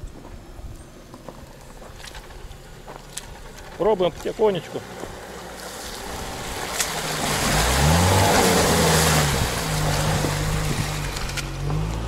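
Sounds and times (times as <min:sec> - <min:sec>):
water and mud splashing: 0:01.9 - 0:12.0
car engine revving: 0:02.4 - 0:12.0.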